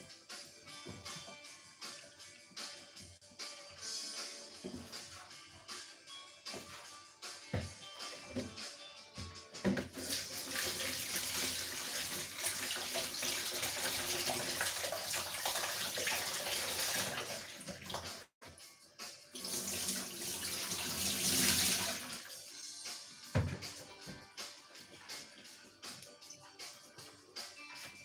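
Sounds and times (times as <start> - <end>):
water running from a tap: 9.9 - 18.3, 19.4 - 22.6.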